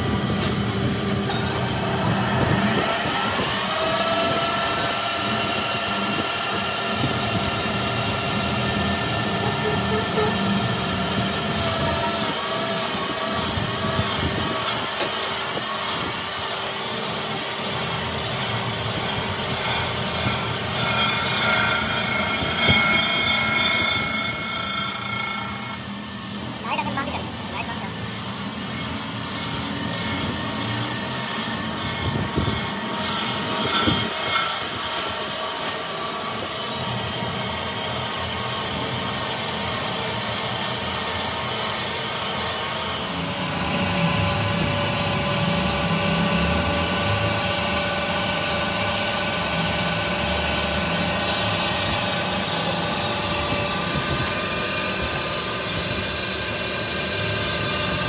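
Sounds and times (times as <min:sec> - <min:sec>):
tool rubbing and scraping: 0:11.5 - 0:39.0, 0:44.1 - 0:53.7.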